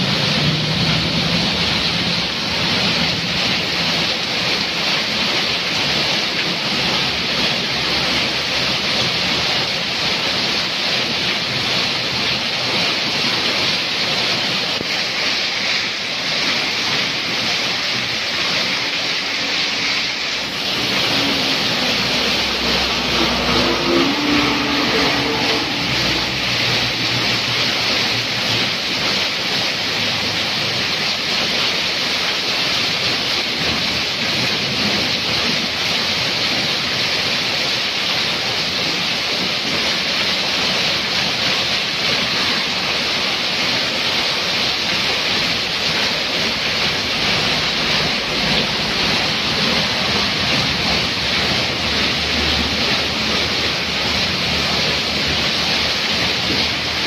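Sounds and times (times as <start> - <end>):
heavy rain on road: 0.0 - 57.0
motorcycles passing on wet road: 0.0 - 57.0
water pouring off roof: 0.0 - 57.0
truck engine droning: 20.1 - 28.6.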